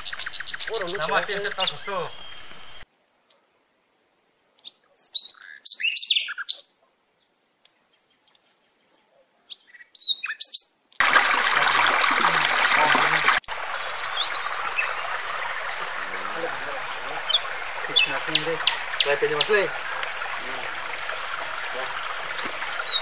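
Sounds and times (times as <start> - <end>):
birds chirping and whistling: 0.0 - 2.8, 5.0 - 6.6, 9.6 - 10.6, 13.6 - 23.0
outdoor ambience hiss: 0.0 - 23.0.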